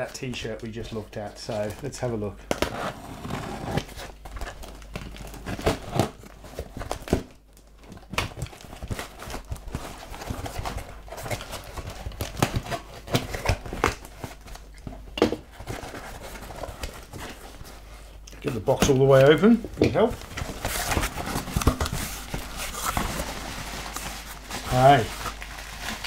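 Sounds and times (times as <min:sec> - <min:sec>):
cardboard scraping and rustling: 0:02.6 - 0:07.3, 0:15.4 - 0:26.0
knocks and handling sounds: 0:03.7 - 0:26.0
tape tearing: 0:20.1 - 0:26.0.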